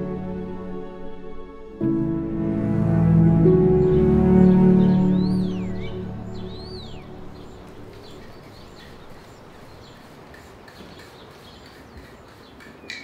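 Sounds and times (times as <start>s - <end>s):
steady outdoor hiss: 0.0s - 13.0s
small birds chirping: 3.6s - 13.0s.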